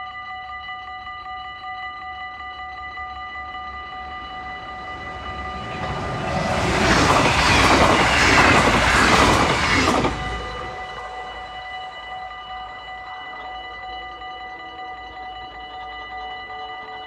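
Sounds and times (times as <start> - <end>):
crossing warning bell ringing: 0.0 - 17.0
train rumble and wheel clatter: 3.3 - 12.3.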